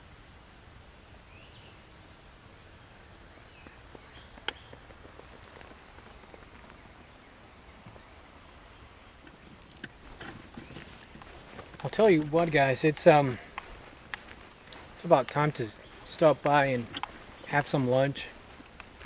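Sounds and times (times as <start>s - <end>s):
bird chirps: 3.3s - 5.4s, 8.8s - 18.3s.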